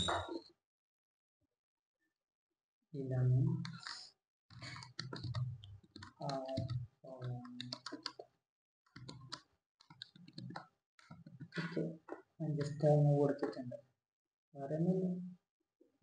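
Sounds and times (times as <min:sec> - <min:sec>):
keyboard typing clicks: 0:04.6 - 0:08.2, 0:09.0 - 0:11.8.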